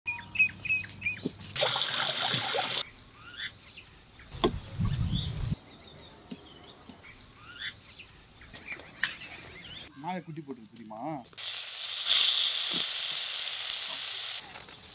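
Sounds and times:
small birds chirping: 0.1 - 1.6, 2.2 - 11.2
burst of hiss: 11.4 - 14.6.

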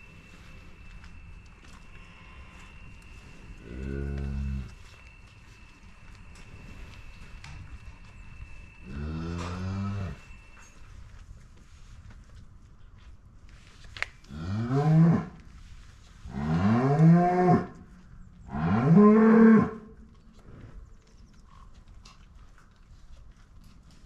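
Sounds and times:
cow mooing: 8.9 - 10.2.

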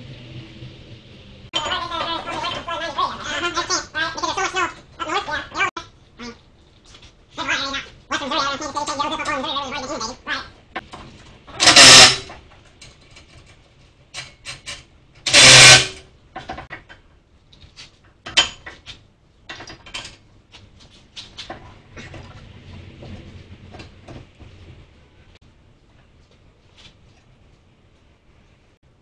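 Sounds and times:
loud tool burst: 11.6 - 12.4, 15.2 - 16.0.

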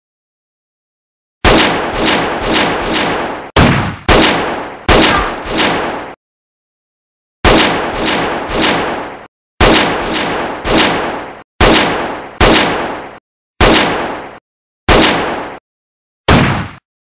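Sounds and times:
gunshots with echoing tail: 1.4 - 6.2, 7.5 - 15.6, 16.3 - 16.8.

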